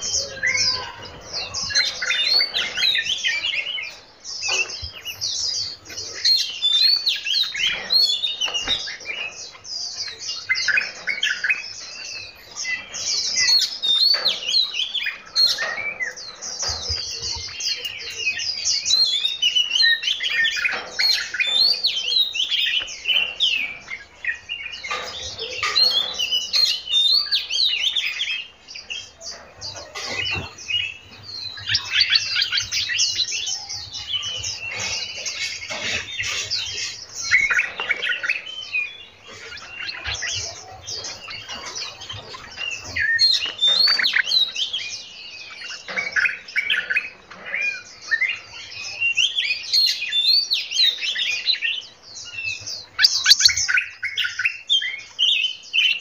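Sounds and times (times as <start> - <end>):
songbirds singing and chirping: 0.0 - 56.0.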